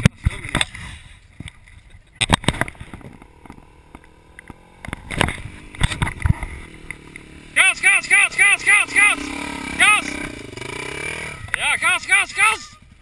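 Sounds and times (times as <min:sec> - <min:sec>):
camera handling knocks and bumps: 0:01.4 - 0:03.6, 0:04.4 - 0:06.5.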